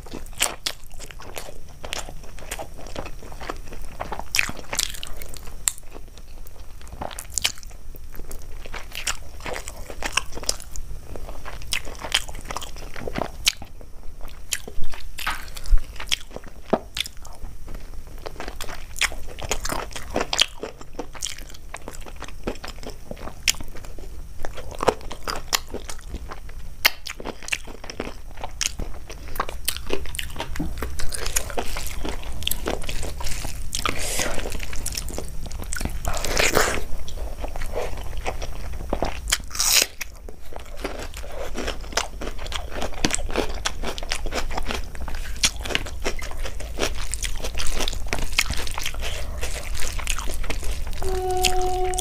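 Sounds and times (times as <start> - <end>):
person chewing crunchy food: 0.0 - 52.0
mouth sounds: 51.0 - 52.0.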